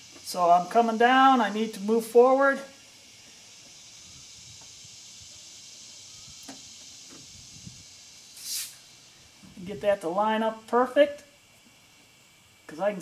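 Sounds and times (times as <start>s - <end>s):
steady high hiss: 0.0s - 13.0s
short hissing rush: 2.2s - 9.6s.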